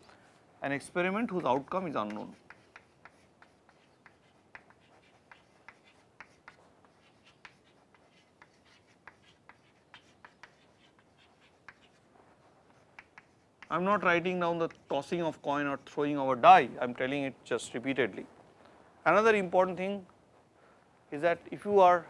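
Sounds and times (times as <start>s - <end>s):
chalk tapping and scratching: 0.8s - 16.2s.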